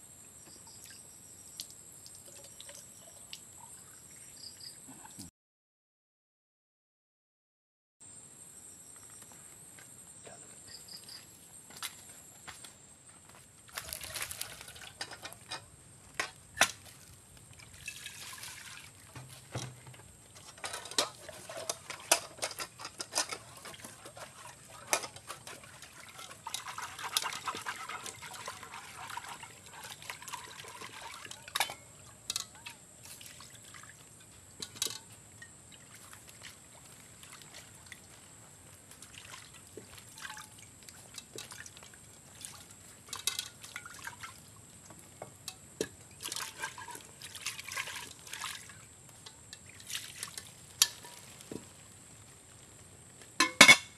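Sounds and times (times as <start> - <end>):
water pouring in metal pot: 2.2 - 3.8, 13.8 - 15.6, 17.6 - 19.3, 19.9 - 36.2, 39.2 - 44.5, 45.5 - 52.6
pot lids clinking: 20.5 - 24.2, 31.1 - 32.8, 53.4 - 53.9.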